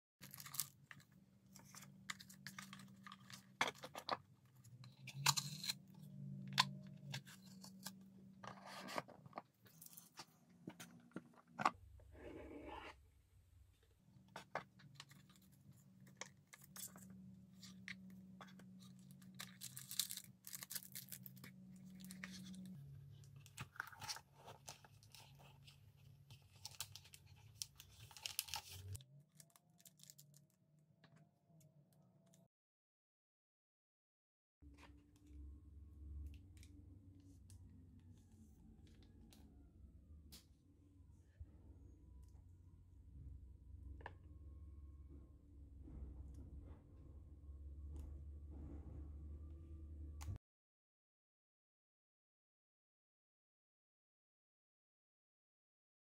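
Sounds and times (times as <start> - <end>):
paper rustling and tearing: 26.4 - 29.0
low steady hum: 34.7 - 50.4.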